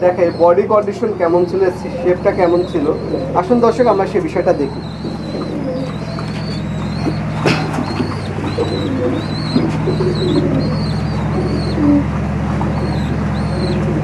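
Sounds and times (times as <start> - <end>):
pigeons cooing: 0.0 - 14.0
steady low hum: 0.0 - 14.0.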